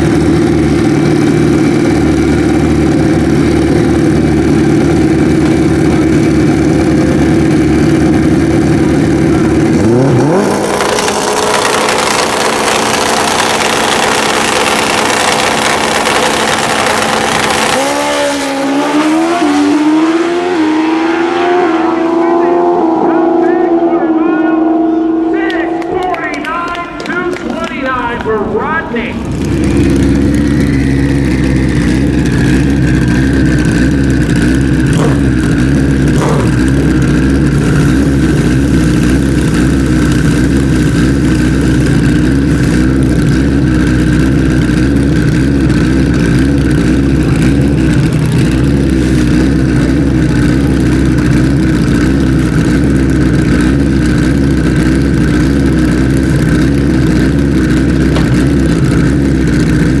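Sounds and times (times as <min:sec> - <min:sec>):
motorcycle engines idling loudly: 0:00.0 - 0:19.6, 0:21.6 - 1:00.0
steady high whine: 0:21.6 - 1:00.0.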